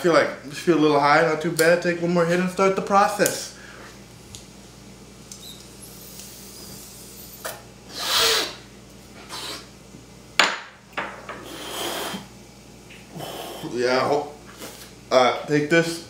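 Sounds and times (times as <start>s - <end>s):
breathy exhales: 13.1s - 13.8s.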